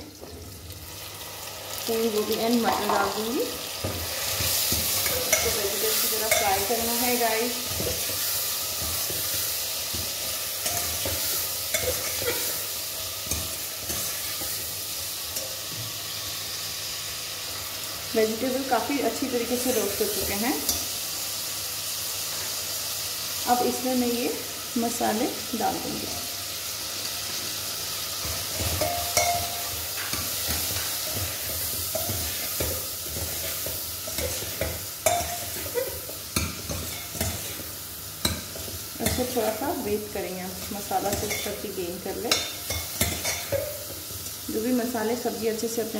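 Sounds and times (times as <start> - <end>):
vegetables sizzling in oil: 0.0 - 45.9
metal ladle clinking on pot: 28.6 - 31.2.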